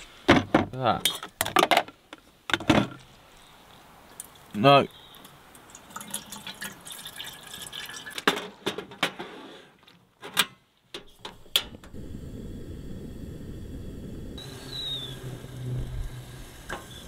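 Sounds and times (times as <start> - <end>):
water pouring into kettle: 5.5 - 8.3
gas flame rushing: 11.1 - 17.0.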